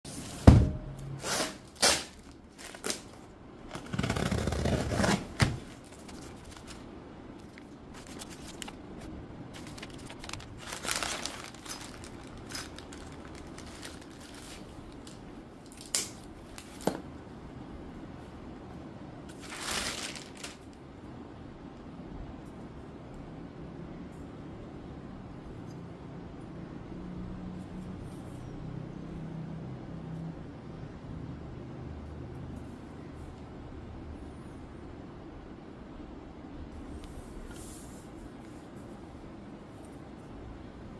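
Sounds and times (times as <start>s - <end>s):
foam wrap and plastic rustling: 1.1s - 17.0s, 19.3s - 20.8s
cardboard box tearing: 3.7s - 6.8s, 9.6s - 14.4s.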